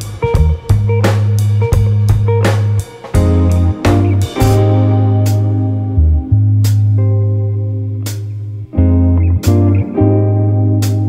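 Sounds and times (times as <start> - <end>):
drum hits: 0.0 - 5.6
bass line: 0.0 - 11.0
guitar: 0.0 - 11.0.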